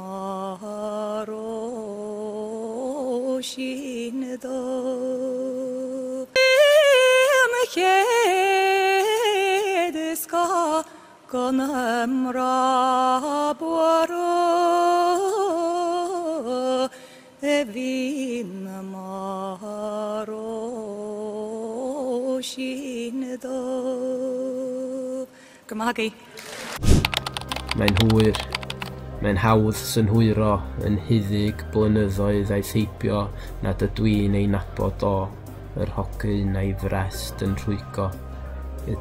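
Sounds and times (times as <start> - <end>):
woman singing unaccompanied: 0.0 - 26.3.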